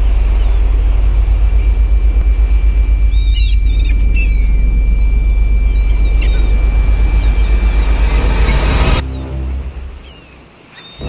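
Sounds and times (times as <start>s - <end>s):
pulsing low rumble: 0.0s - 10.4s
bird chirps: 2.8s - 9.3s, 10.0s - 11.0s.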